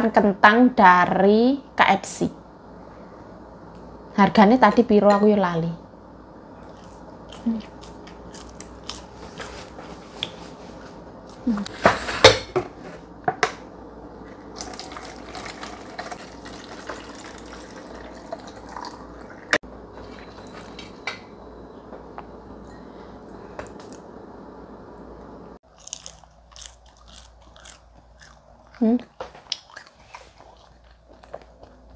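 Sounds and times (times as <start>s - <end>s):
water pouring into plastic bottle: 14.6s - 19.0s.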